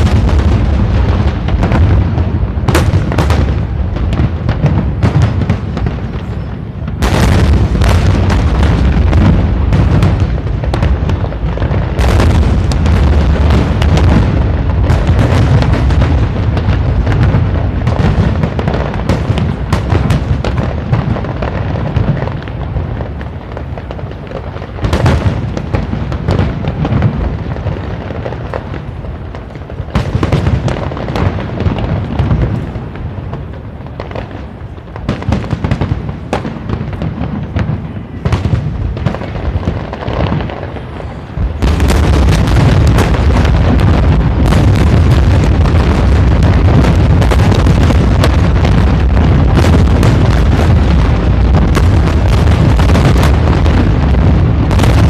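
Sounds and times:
fireworks bursting: 0.0s - 55.0s.

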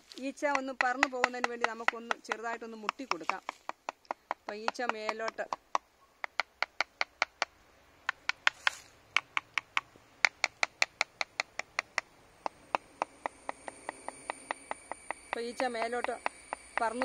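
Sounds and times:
rapid tapping on hive box: 0.4s - 17.0s
faint high whine: 12.1s - 17.0s.

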